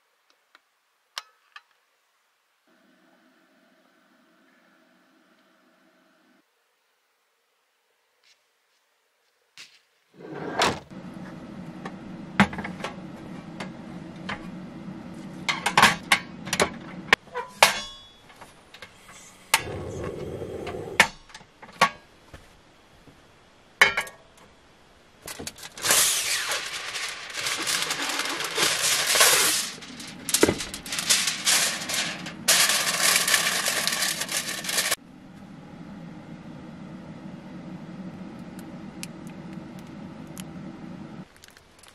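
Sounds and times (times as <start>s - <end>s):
low hum: 10.9s - 17.2s, 26.2s - 41.9s
aluminium foil crinkling: 25.3s - 35.0s, 41.3s - 41.9s.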